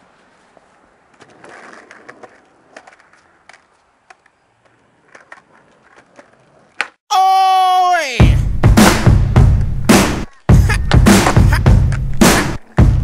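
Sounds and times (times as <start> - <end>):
skateboard rolling on concrete: 0.0 - 7.0, 8.8 - 13.0
skateboard wheel clicks: 1.1 - 7.0.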